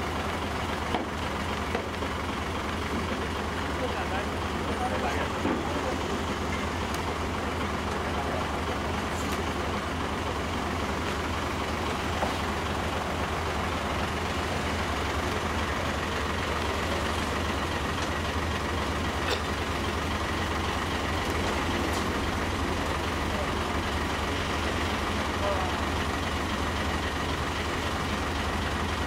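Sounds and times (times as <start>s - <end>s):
truck engine humming: 0.0s - 29.0s.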